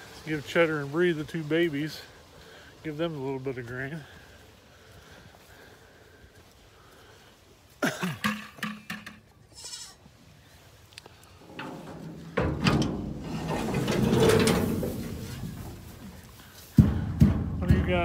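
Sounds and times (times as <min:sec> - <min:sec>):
goats bleating: 0:09.5 - 0:10.1.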